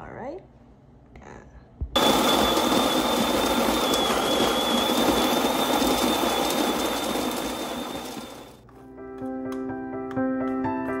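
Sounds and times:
coffee grinder grinding beans: 0:02.0 - 0:08.6
thin high whine: 0:02.0 - 0:08.6.

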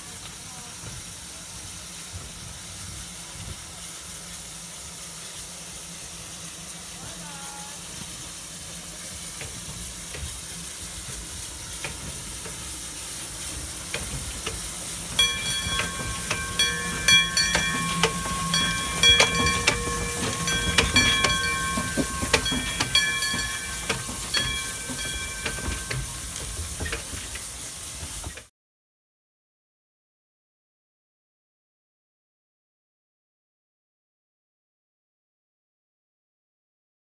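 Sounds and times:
hiss of steam: 0:00.0 - 0:28.5
wheels squealing on rails: 0:08.8 - 0:28.5
metallic clanks of running gear: 0:13.6 - 0:28.4.

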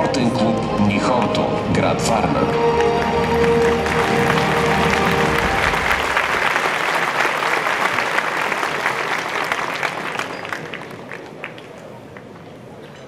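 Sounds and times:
entrance music with bass line: 0:00.0 - 0:06.4
audience applauding: 0:02.4 - 0:12.4.

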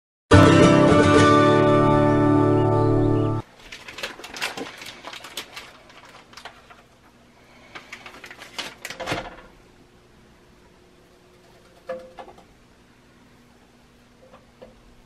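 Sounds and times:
plastic packaging crinkling: 0:03.4 - 0:09.4.

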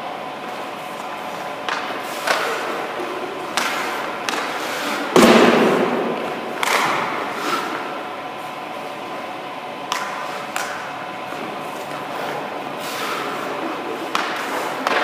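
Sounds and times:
skate blades scraping ice: 0:00.9 - 0:06.0, 0:06.6 - 0:08.0, 0:09.9 - 0:15.0.

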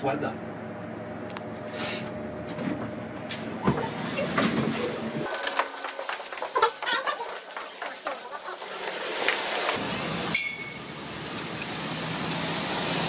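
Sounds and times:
city traffic on a wet street: 0:08.8 - 0:13.0.

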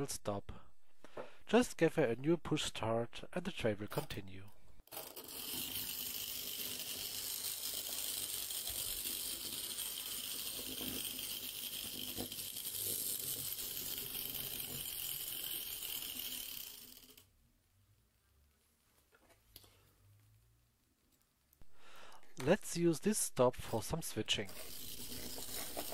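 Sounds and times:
small wheels rattling on rails: 0:04.9 - 0:17.2.

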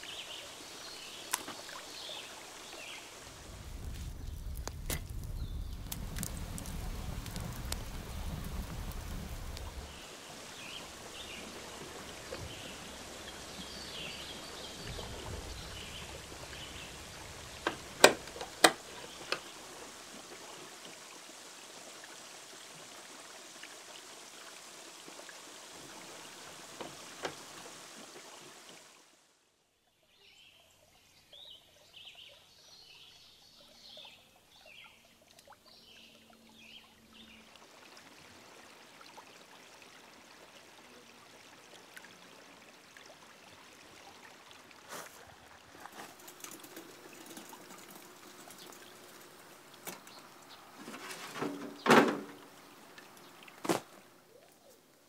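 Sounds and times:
trickle of running water: 0:00.0 - 0:29.4, 0:30.2 - 0:55.0
wood fire crackling: 0:03.1 - 0:21.0, 0:44.9 - 0:54.5.

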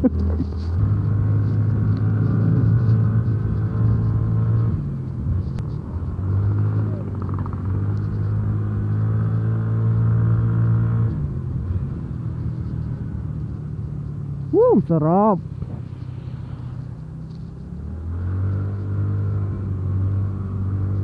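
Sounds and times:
scooter engine running: 0:00.1 - 0:09.3.

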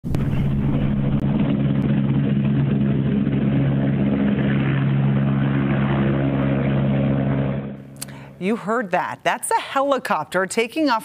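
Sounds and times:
helicopter rotor and engine: 0:00.1 - 0:08.0.

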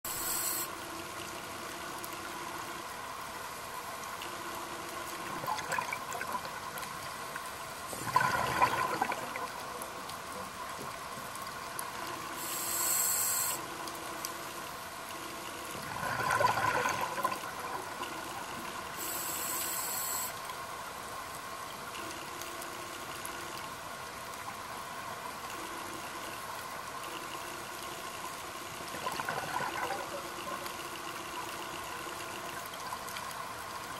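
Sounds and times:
underwater background: 0:00.0 - 0:33.9
high hiss of regulator inhale: 0:00.1 - 0:00.7, 0:12.4 - 0:13.6, 0:19.0 - 0:20.3
exhaled bubbles underwater: 0:05.2 - 0:06.8, 0:07.9 - 0:09.8, 0:15.8 - 0:18.5, 0:28.9 - 0:30.9.

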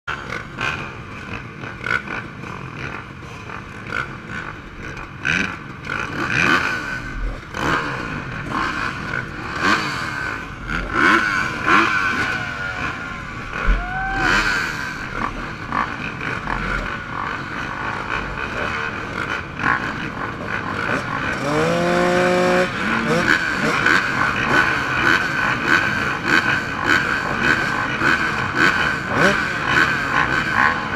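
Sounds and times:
motocross bike engines idling: 0:00.1 - 0:30.9
engine revving high: 0:05.2 - 0:30.9.

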